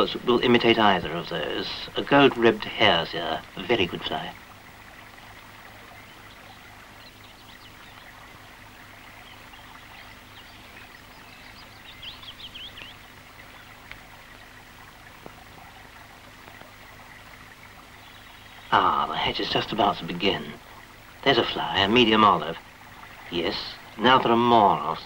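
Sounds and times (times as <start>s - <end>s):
river water flowing: 0.0s - 25.0s
bird chirping: 5.1s - 14.6s, 17.8s - 20.6s.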